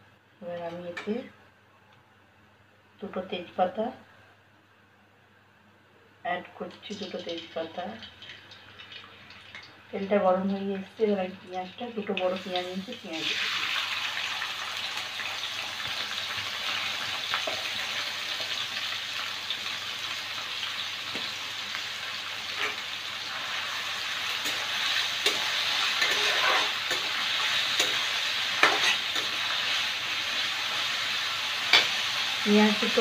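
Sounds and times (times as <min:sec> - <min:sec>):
onions sizzling in hot oil: 0:06.6 - 0:33.0
steel spatula scraping pan: 0:24.4 - 0:28.0, 0:28.6 - 0:29.4.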